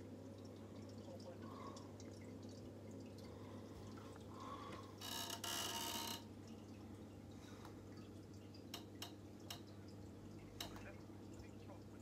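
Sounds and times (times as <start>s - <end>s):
faint filter hum: 0.0s - 5.0s
water trickling and dripping: 0.0s - 12.0s.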